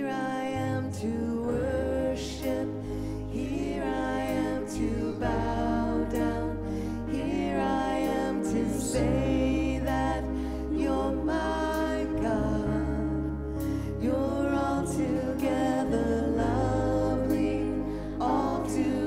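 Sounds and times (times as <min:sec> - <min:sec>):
person singing worship song: 0:00.0 - 0:19.0
sustained bass and chords: 0:00.0 - 0:19.0.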